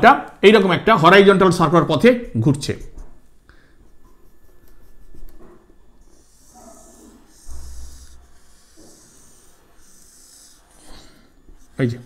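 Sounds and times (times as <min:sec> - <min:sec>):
pen scratching on paper: 0:04.0 - 0:12.0.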